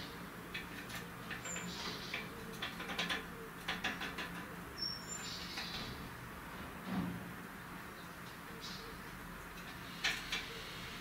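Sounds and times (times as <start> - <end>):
bird tapping and scratching on wood: 0.5 - 4.6
bird chirps: 4.8 - 5.9.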